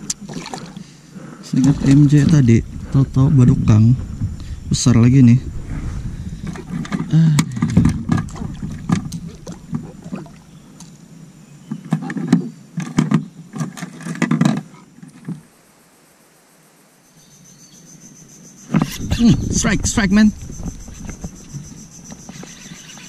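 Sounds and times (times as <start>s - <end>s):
knocks and thumps on kayak: 1.6s - 4.8s, 5.4s - 11.0s, 11.7s - 15.5s, 18.7s - 22.8s.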